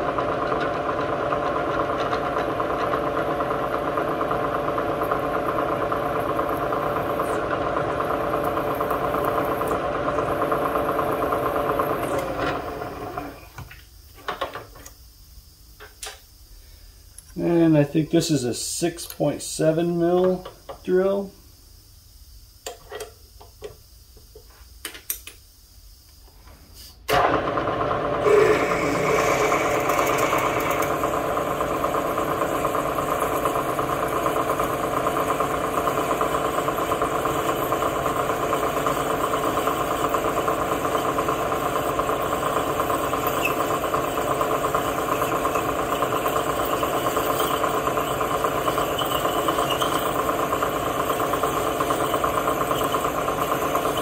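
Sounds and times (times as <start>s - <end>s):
milling machine drilling steel: 28.2s - 54.0s.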